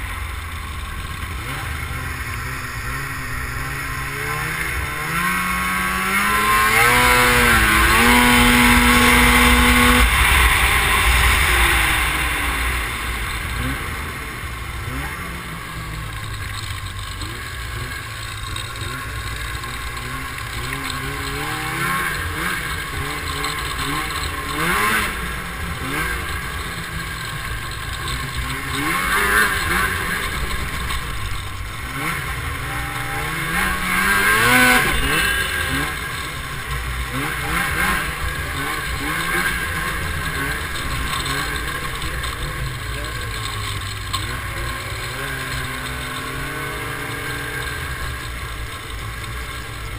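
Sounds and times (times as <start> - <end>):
snowmobile engines revving: 0.0 - 49.9.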